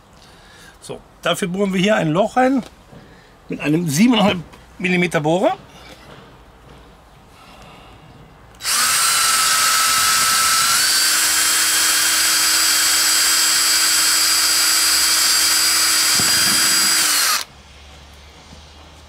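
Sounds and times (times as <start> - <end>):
power drill whining into plastic: 8.6 - 17.5.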